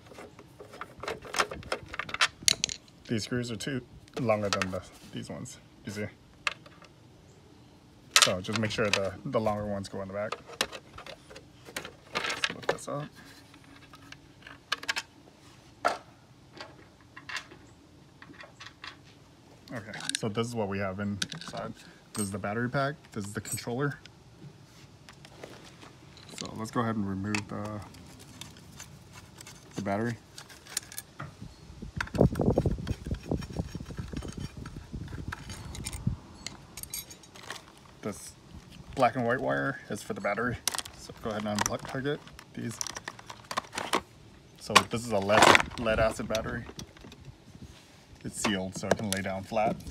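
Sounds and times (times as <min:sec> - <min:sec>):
screwdriver knocking and scraping: 0:32.0 - 0:37.0.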